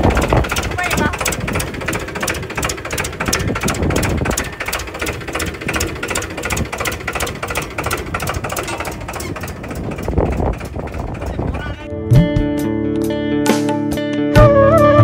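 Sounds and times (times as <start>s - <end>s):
tractor diesel engine clattering: 0.0s - 11.9s.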